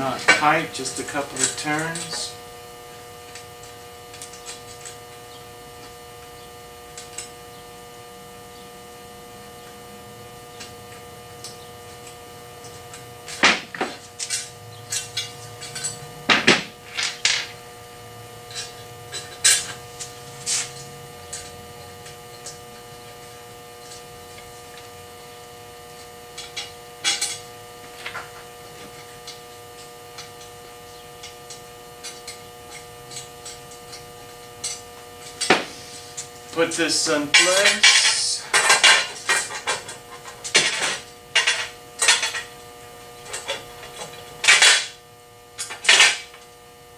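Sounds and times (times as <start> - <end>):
steady electrical hum: 0.0 - 46.9
metal screws and parts clinking: 12.6 - 16.1, 36.9 - 42.5.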